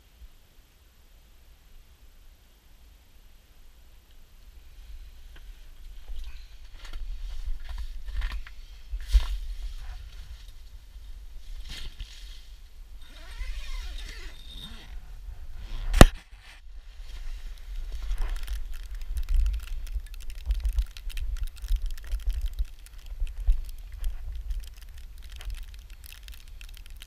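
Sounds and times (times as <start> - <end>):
crackling noise: 4.0 - 27.0
camera handling noise: 15.8 - 16.6.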